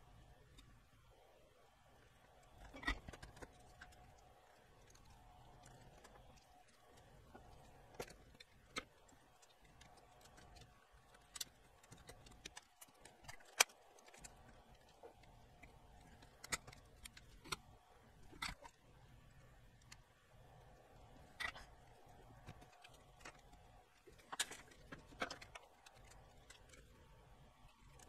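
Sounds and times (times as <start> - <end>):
plastic parts clicking and tapping: 2.4 - 18.8, 21.2 - 28.0.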